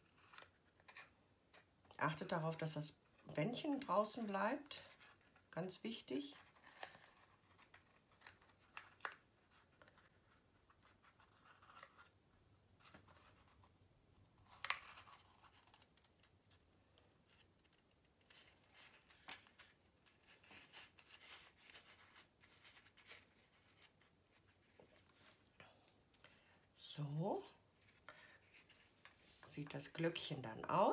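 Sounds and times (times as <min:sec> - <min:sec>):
paper rustling and crinkling: 0:17.2 - 0:24.0.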